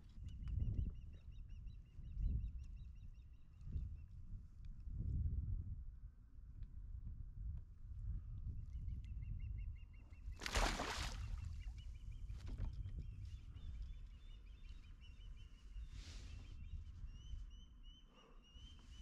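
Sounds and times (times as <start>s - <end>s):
fish splashing into water: 10.4s - 11.4s.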